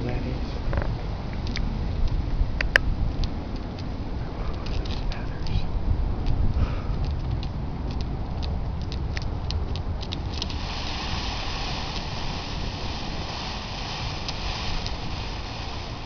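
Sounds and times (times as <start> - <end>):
wind rumbling on microphone: 0.0 - 16.0
steady hiss: 10.0 - 16.0.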